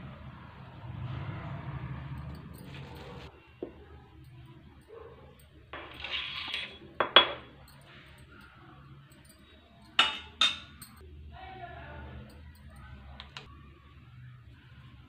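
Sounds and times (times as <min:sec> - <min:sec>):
spoon scraping bowl: 0:02.5 - 0:03.3, 0:05.8 - 0:06.9
spoon clinking against steel bowl: 0:09.2 - 0:11.1.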